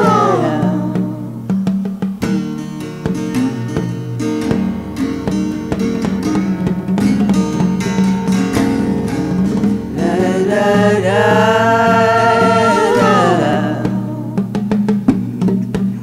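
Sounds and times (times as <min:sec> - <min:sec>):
backing vocals singing: 0:00.0 - 0:01.5, 0:10.0 - 0:14.6
strummed acoustic guitar: 0:00.0 - 0:16.0.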